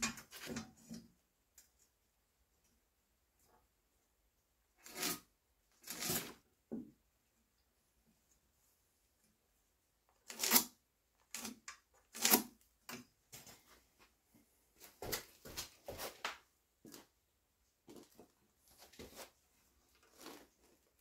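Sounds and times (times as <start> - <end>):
scraping and rubbing on concrete: 4.8 - 6.4.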